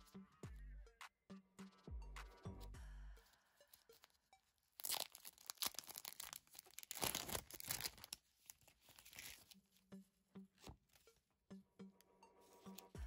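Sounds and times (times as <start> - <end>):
plastic packaging crackling: 3.7 - 9.8.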